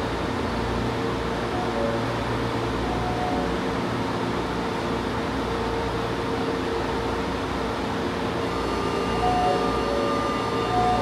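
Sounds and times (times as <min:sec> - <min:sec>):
train rumble and hum: 0:00.0 - 0:11.0
electric whine: 0:08.0 - 0:11.0.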